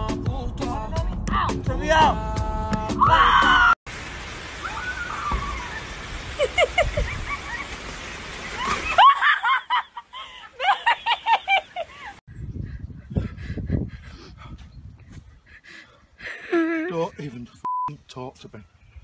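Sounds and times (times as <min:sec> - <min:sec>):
heavy rain pouring: 0:03.9 - 0:09.1
person laughing hard: 0:06.4 - 0:07.7, 0:08.6 - 0:12.2, 0:16.2 - 0:17.3.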